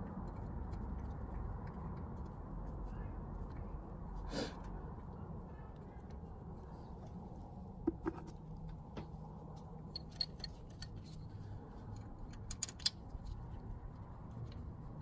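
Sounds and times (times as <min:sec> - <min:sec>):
hand tools clicking on metal: 0:12.0 - 0:13.4.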